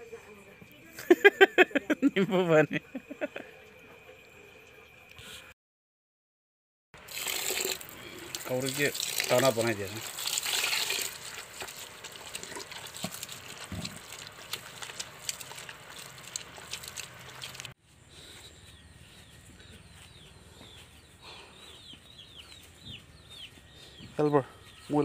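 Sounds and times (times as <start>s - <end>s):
wet squelching of kneaded mash: 7.0s - 17.8s
chickens cheeping: 18.1s - 24.8s.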